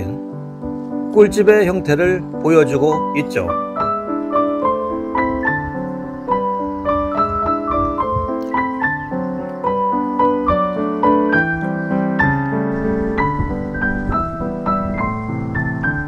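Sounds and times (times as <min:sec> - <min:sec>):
piano music: 0:00.0 - 0:16.0.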